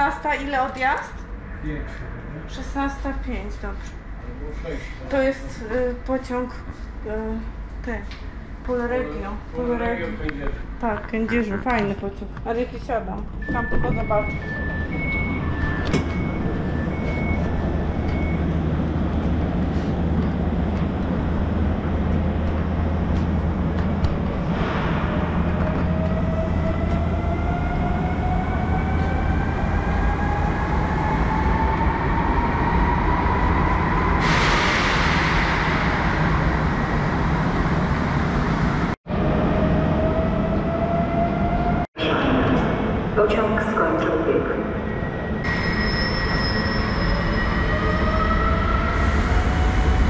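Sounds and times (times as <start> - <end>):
train carriage rumble: 0.0 - 45.4
train traction whine: 13.2 - 43.2
two-tone door warning beep: 13.3 - 18.6
rushing noise: 14.6 - 40.1.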